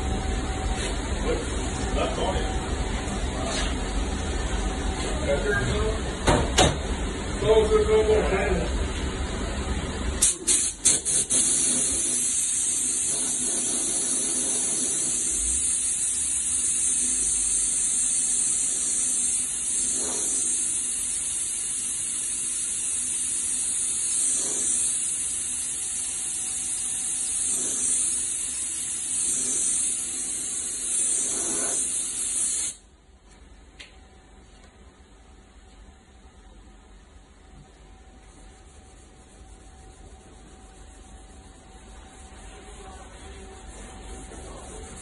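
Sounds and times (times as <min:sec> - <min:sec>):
compressed air hissing: 0:10.2 - 0:32.8.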